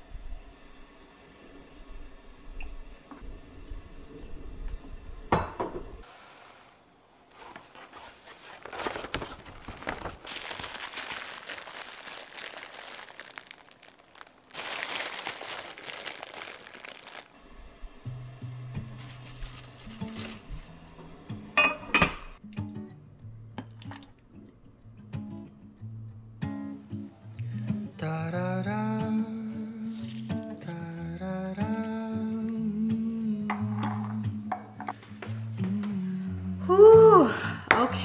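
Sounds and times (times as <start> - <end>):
stovetop kitchen sounds: 0.1 - 22.4, 28.7 - 36.0
plastic bags crinkling: 7.4 - 17.4, 19.0 - 20.7, 29.9 - 30.8.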